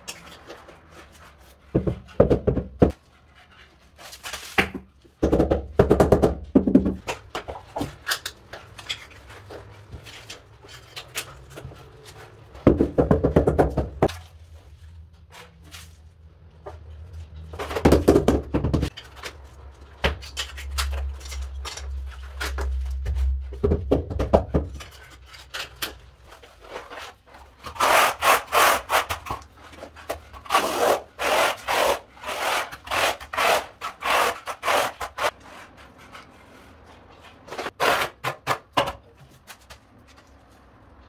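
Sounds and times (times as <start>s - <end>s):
trowel scraping adhesive: 26.7s - 29.4s, 30.1s - 35.7s.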